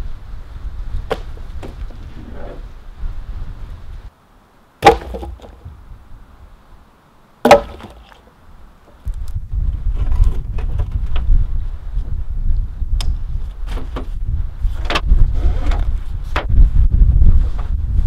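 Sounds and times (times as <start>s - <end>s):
firewood landing on woodpile: 1.1s - 1.9s, 4.8s - 5.7s, 7.4s - 8.2s.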